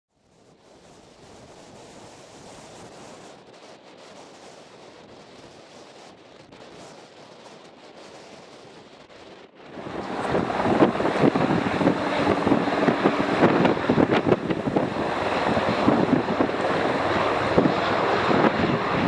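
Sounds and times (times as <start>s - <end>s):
distant taxiing airliner rushing: 0.6s - 19.0s
loud aircraft noise: 9.6s - 19.0s.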